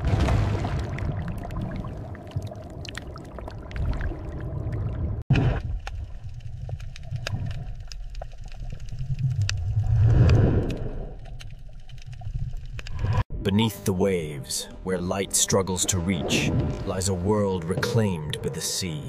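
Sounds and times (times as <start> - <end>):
bubbling gurgling water: 0.0 - 5.2
deep underwater rumble: 0.0 - 13.5
small clicks: 5.8 - 13.1.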